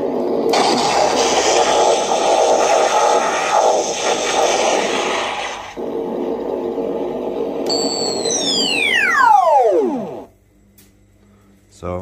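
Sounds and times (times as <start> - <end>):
rough noisy effect: 0.0 - 10.3
whining tone sliding down: 7.6 - 10.3.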